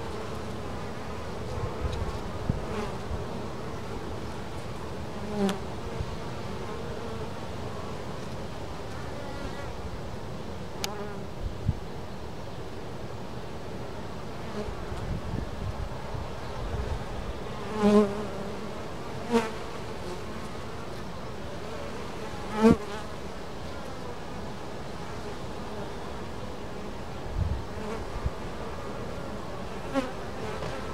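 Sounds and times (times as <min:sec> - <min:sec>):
bee flying close past: 0:17.6 - 0:20.6.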